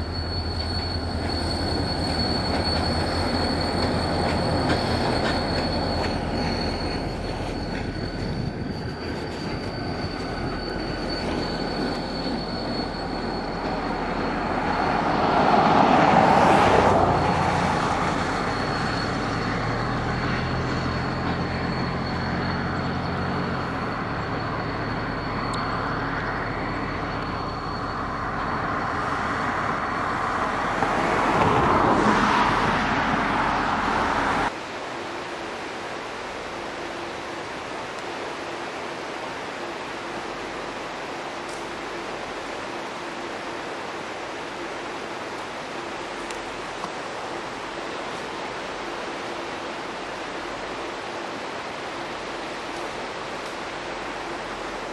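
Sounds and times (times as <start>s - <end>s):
wheel flange squeal: 0.0s - 34.6s
diesel locomotive engine drone: 0.0s - 54.9s.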